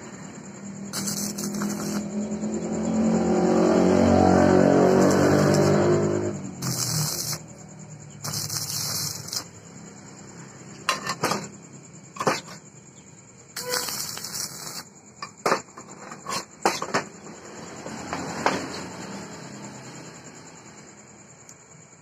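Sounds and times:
arc welding crackle: 0:00.9 - 0:02.2, 0:04.7 - 0:07.6, 0:08.2 - 0:09.6, 0:13.6 - 0:15.0.

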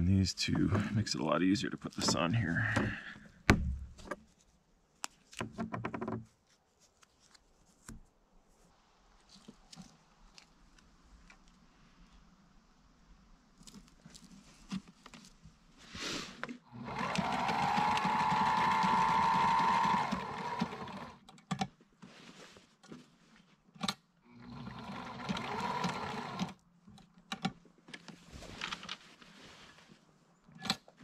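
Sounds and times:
sewing machine stitching: 0:16.7 - 0:21.2, 0:24.4 - 0:26.6.

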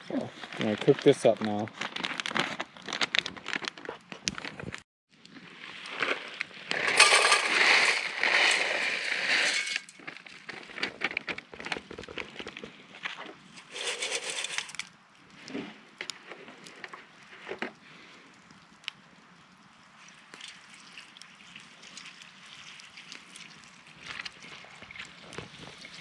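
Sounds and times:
plastic pouch crinkling: 0:00.5 - 0:04.8
dry pieces rattling into pot: 0:06.7 - 0:10.3, 0:13.6 - 0:14.9.

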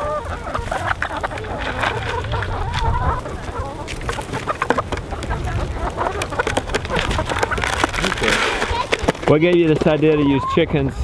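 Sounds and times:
hens clucking: 0:00.0 - 0:11.0
footstep scuffs and clicks: 0:01.0 - 0:05.1.

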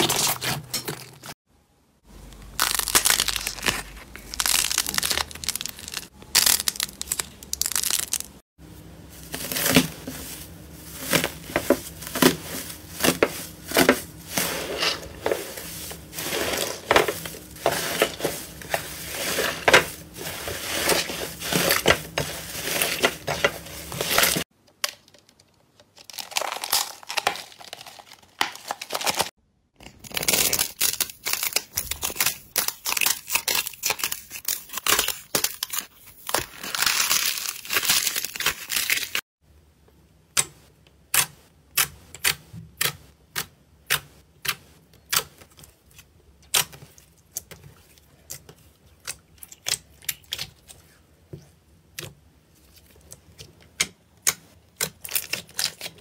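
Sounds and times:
slime crackling and tearing: 0:02.4 - 0:08.4, 0:26.0 - 0:39.2, 0:54.8 - 0:56.0.

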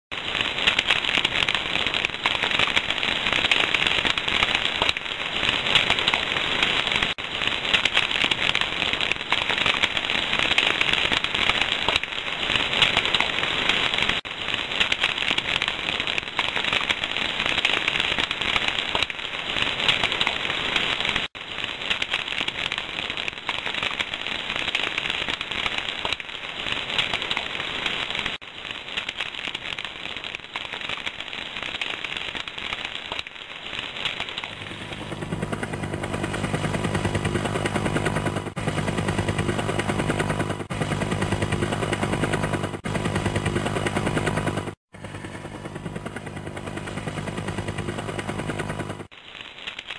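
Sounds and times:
large fire crackling and popping: 0:00.1 - 0:49.9.

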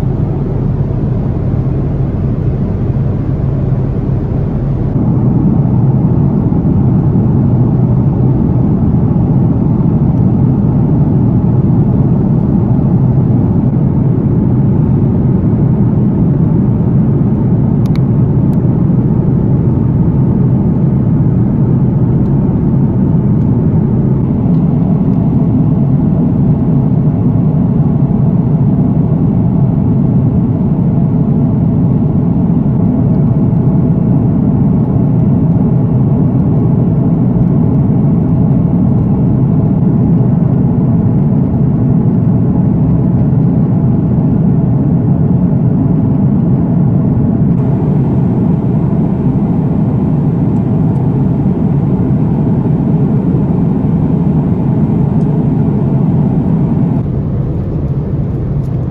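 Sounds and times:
airflow noise: 0:00.0 - 0:15.0, 0:31.3 - 0:58.9
airplane cabin engine drone: 0:00.0 - 0:58.9.

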